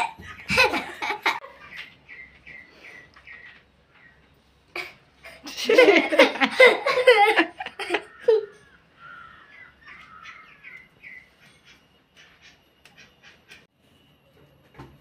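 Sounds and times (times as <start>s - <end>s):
children laughing: 0.0s - 2.0s, 4.7s - 8.8s
birds chirping softly: 0.0s - 5.4s, 7.6s - 15.0s.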